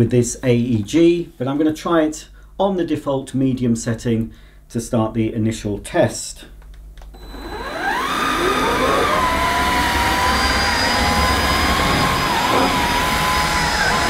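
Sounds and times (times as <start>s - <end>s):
vacuum brush on carpet: 7.2s - 14.0s
vacuum cleaner motor whine: 7.2s - 14.0s.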